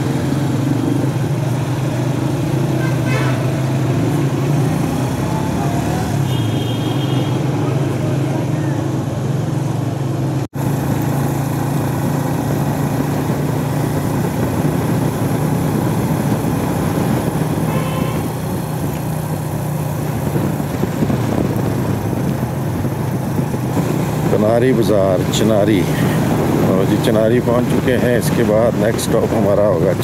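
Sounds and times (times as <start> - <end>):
motorcycle engine running: 0.0 - 30.0
wind noise: 11.8 - 30.0.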